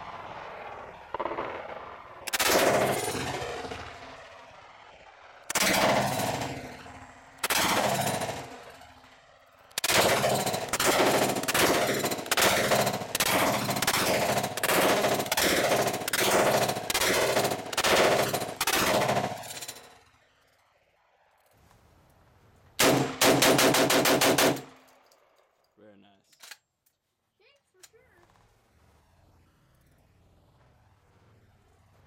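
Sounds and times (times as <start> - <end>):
submachine gun shots echoing: 0.0 - 4.3, 5.5 - 9.0, 9.8 - 19.8, 22.8 - 24.9.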